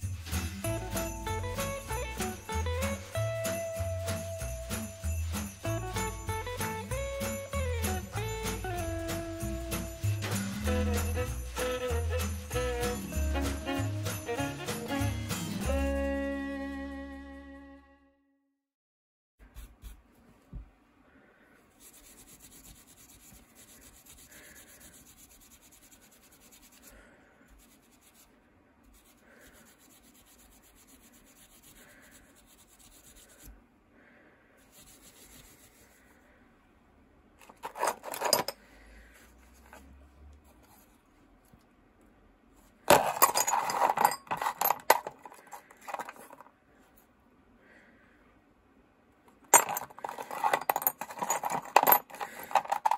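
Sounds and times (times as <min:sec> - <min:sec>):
metal parts clinking in plastic tub: 0:37.4 - 0:38.6, 0:42.9 - 0:46.5, 0:49.4 - 0:52.9.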